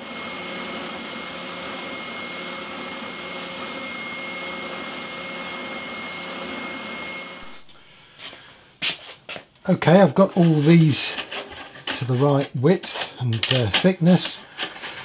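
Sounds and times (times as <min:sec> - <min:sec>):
belt sander whining: 0:00.0 - 0:07.9.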